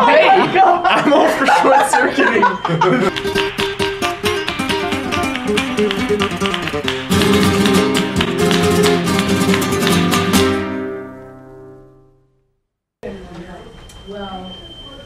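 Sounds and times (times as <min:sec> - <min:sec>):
flamenco acoustic guitar: 0:03.1 - 0:12.0.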